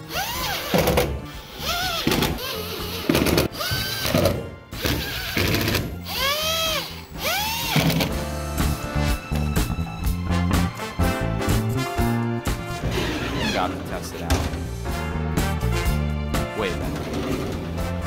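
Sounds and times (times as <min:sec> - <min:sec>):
impact driver whining in bursts: 0:00.0 - 0:08.2
screws driven into sheet metal: 0:00.0 - 0:08.2
background music: 0:00.0 - 0:18.0.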